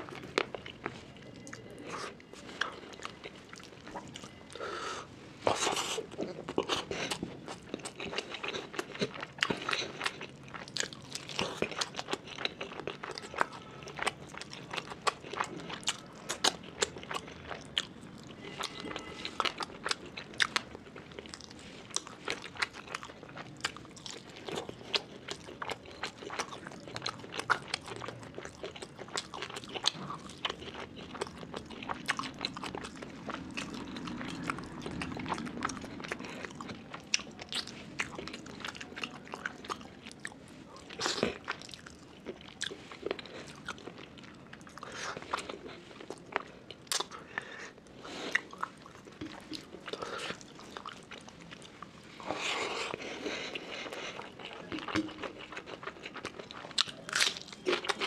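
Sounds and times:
chewing with wet mouth clicks: 0:05.5 - 0:58.0.

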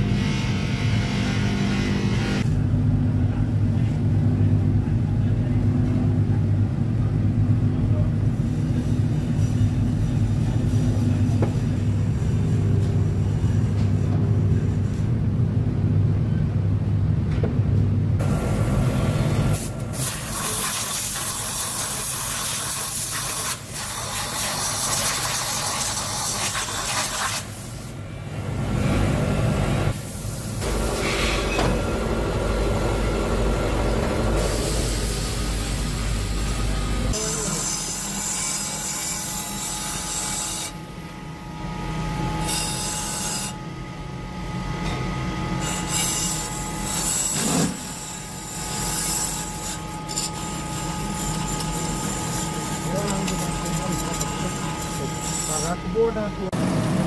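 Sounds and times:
metal cup rubbing on polishing pad: 0:49.3 - 0:55.7.

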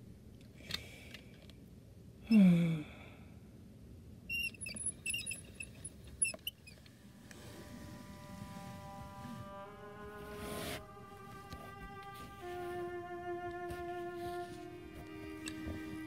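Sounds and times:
high-pitched squeaks: 0:04.3 - 0:16.0
bowed-string music: 0:07.2 - 0:16.0
tone sliding down in pitch: 0:07.3 - 0:16.0.

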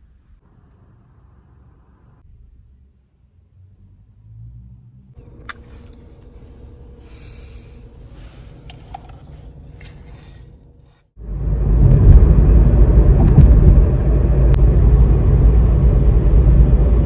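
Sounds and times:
low rumble inside car cabin: 0:05.1 - 0:17.0
thin steady hum: 0:05.2 - 0:13.0.

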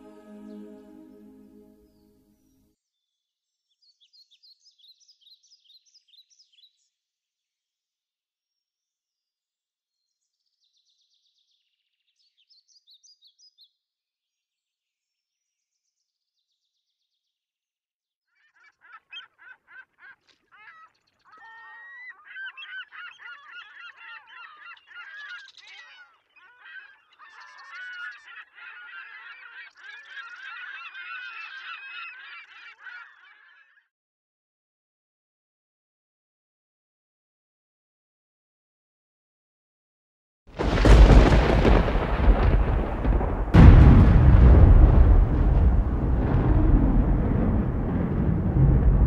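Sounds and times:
flock of birds calling: 0:18.7 - 0:33.8.

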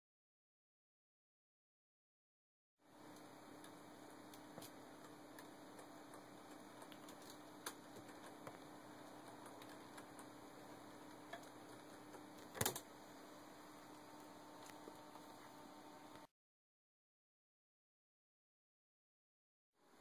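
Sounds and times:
steady low hum: 0:02.8 - 0:16.3.

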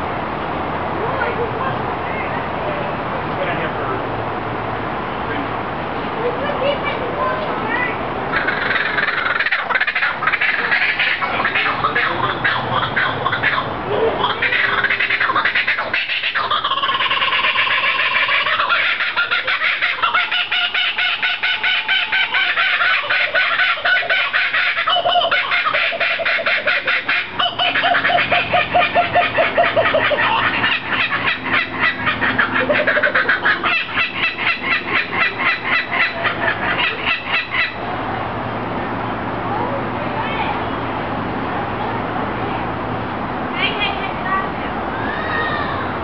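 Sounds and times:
kookaburras laughing: 0:08.3 - 0:37.8.

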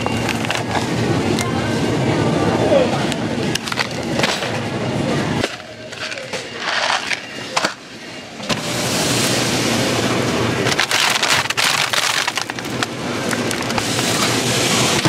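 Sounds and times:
plastic packaging crinkling: 0:10.6 - 0:14.3.

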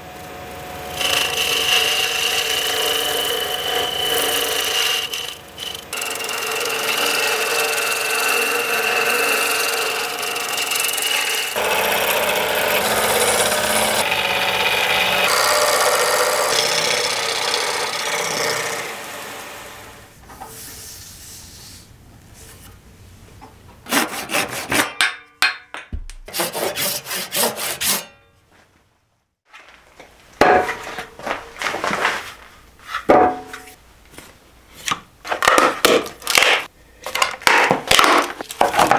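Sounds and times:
lathe tool cutting: 0:00.9 - 0:20.0.

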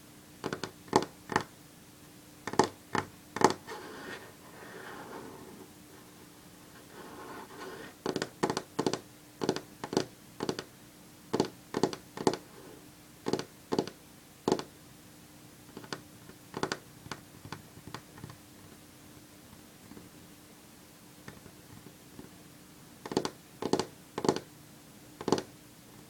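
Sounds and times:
fingernails tapping on wood: 0:00.4 - 0:01.5, 0:02.5 - 0:03.6, 0:08.0 - 0:10.7, 0:11.3 - 0:12.4, 0:13.3 - 0:14.7, 0:15.8 - 0:18.4, 0:23.0 - 0:24.5, 0:25.2 - 0:25.5
fingernails scratching: 0:03.4 - 0:05.7, 0:06.8 - 0:09.6.

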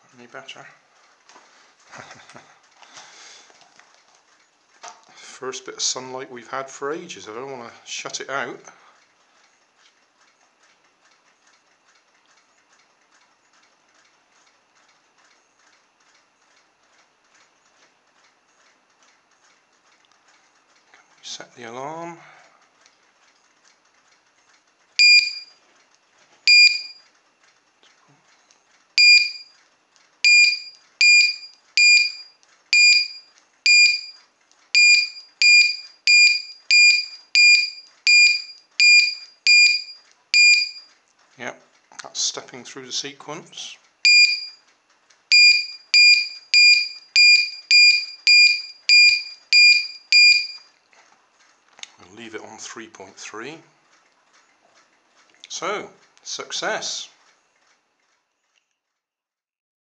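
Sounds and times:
faint regular ticking: 0:08.1 - 0:21.2, 0:22.5 - 0:42.0
shrill buzzer beeps: 0:25.0 - 0:25.6, 0:26.5 - 0:27.0, 0:29.0 - 0:29.5, 0:30.3 - 0:34.2, 0:34.8 - 0:40.9, 0:44.1 - 0:44.6, 0:45.3 - 0:50.7.

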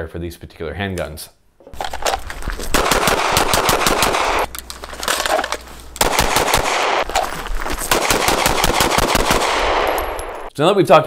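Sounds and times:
rapid pistol shots: 0:02.7 - 0:04.5, 0:06.0 - 0:07.1, 0:07.9 - 0:10.5.

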